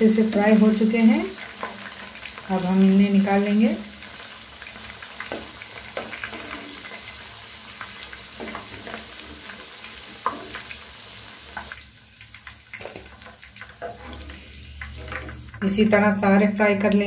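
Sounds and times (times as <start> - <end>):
chicken sizzling in hot oil: 0.0 - 17.0
metal skimmer scraping pan: 13.8 - 15.5.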